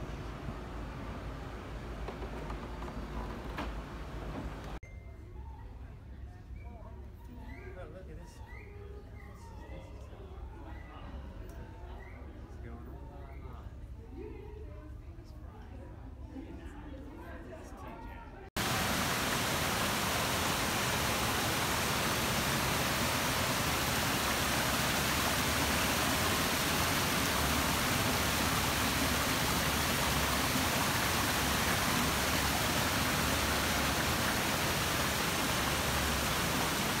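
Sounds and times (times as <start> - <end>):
waterfall rushing and splashing: 18.6 - 37.0.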